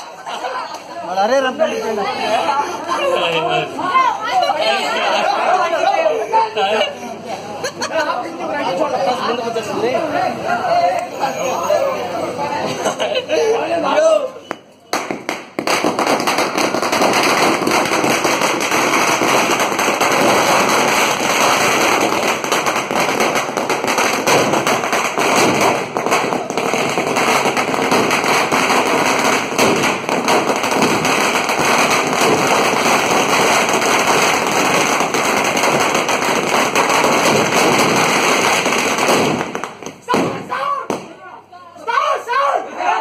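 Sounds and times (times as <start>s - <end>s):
firecrackers crackling: 14.4s - 41.2s.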